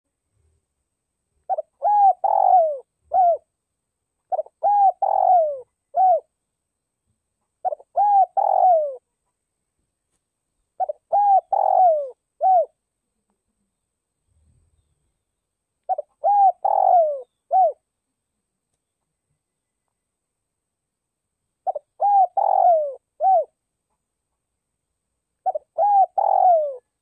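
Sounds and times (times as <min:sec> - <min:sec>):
dove cooing: 0:01.5 - 0:03.5, 0:04.3 - 0:06.3, 0:07.6 - 0:09.1, 0:10.8 - 0:12.8, 0:15.9 - 0:17.8, 0:21.6 - 0:23.6, 0:25.4 - 0:27.0.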